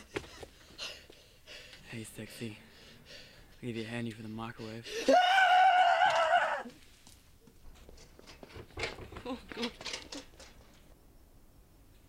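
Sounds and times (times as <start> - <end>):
high-pitched scream: 5.1 - 6.7.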